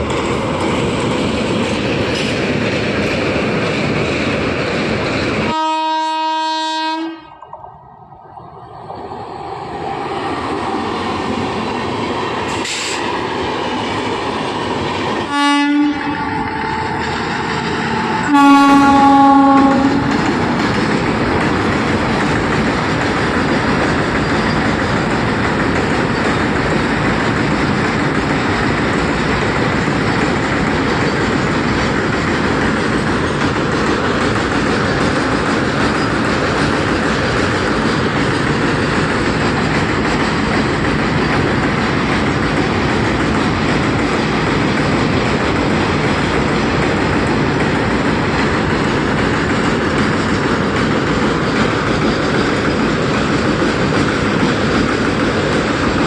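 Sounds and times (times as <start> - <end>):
train wheel and rail noise: 0.0 - 56.0
train horn blasts: 5.5 - 7.4, 15.3 - 16.9, 18.0 - 20.2.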